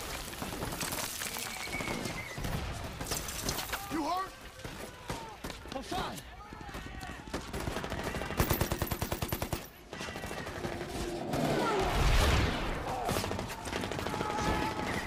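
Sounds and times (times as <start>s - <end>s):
rifle and machine-gun fire: 6.8s - 15.0s.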